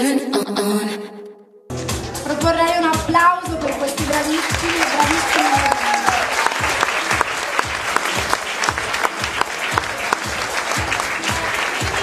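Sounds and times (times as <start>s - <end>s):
music with bass-drum beat: 1.7s - 12.0s
audience applauding: 3.6s - 12.0s.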